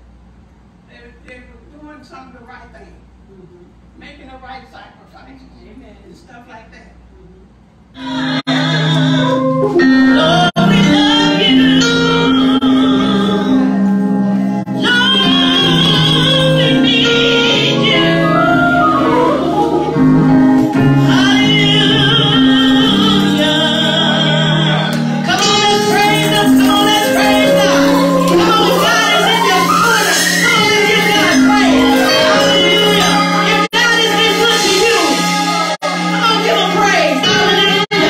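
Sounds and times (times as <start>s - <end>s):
held instrumental chords: 8.0s - 38.0s
woman singing gospel: 8.0s - 38.0s.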